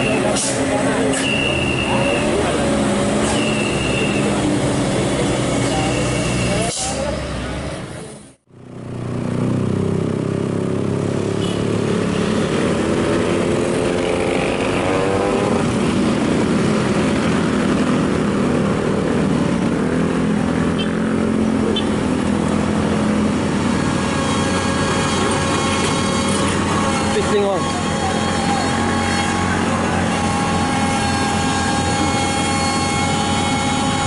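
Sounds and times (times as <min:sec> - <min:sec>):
heavy diesel engine running: 0:00.0 - 0:09.7, 0:11.1 - 0:34.0.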